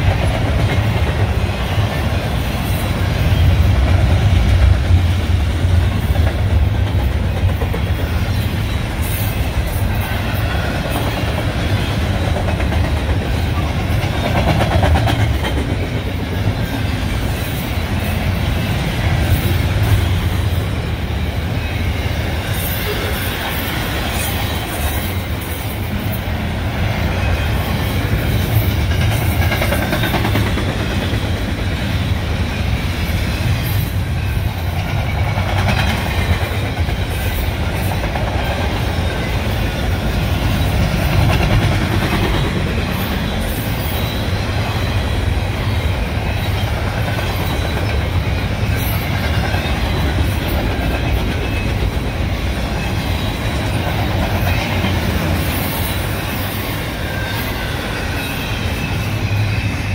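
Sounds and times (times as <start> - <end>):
train clicks and clatter: 0.0 - 59.9
train wheels rumbling on track: 0.0 - 59.9.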